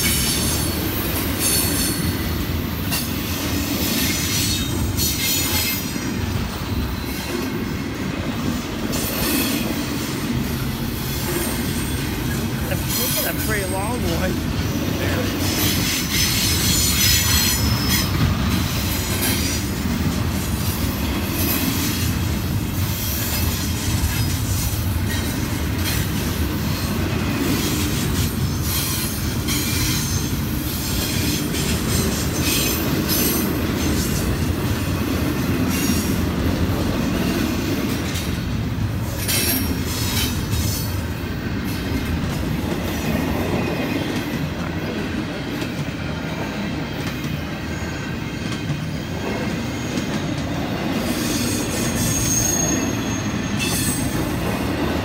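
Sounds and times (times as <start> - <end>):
rail clacks: 0.0 - 55.0
train wheels rumbling on rails: 0.0 - 55.0
high wheel squeal: 6.6 - 7.6, 15.6 - 19.6, 49.6 - 54.2.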